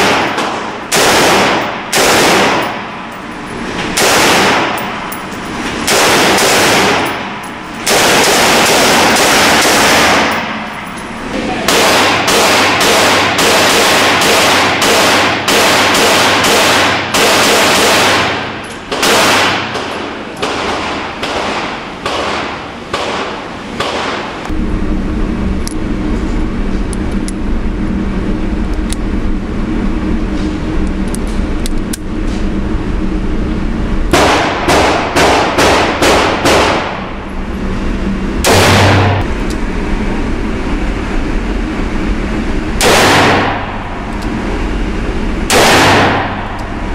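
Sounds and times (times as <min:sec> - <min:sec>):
handgun shots echoing: 0:00.0 - 0:03.3, 0:03.9 - 0:11.1, 0:11.7 - 0:24.4, 0:38.4 - 0:39.2, 0:45.5 - 0:46.6
low steady hum: 0:00.0 - 0:46.9.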